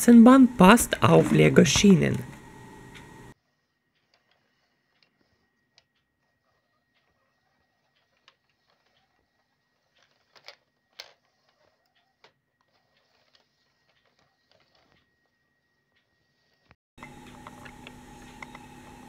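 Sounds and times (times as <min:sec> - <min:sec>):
toy wheels clicking on plastic rails: 0:03.9 - 0:15.2.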